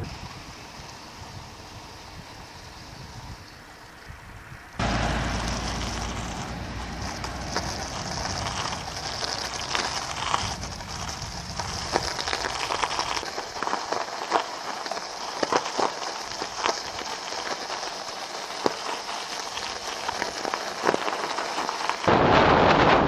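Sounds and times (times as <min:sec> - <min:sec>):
low rumble: 0:04.8 - 0:12.6
bike tyres crunching on icy snow: 0:04.8 - 0:23.0.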